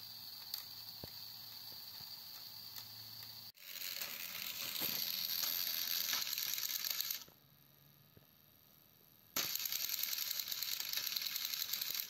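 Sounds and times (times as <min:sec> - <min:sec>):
toy train motor whirring: 0:00.0 - 0:07.3, 0:09.4 - 0:12.0
toy train wheels ticking: 0:00.0 - 0:07.3, 0:09.4 - 0:12.0.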